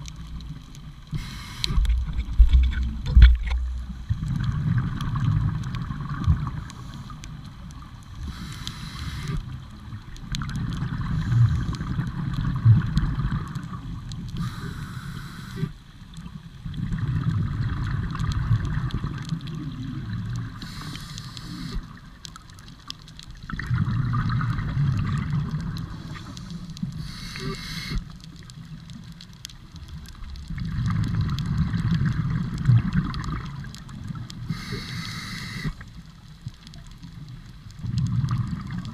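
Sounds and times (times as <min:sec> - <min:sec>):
regulator hiss on inhale: 0:01.1 - 0:02.1, 0:06.7 - 0:07.3, 0:08.2 - 0:09.6, 0:14.3 - 0:15.8, 0:20.5 - 0:22.1, 0:25.9 - 0:28.2, 0:34.4 - 0:36.0
bubbling exhaled air: 0:23.5 - 0:28.1.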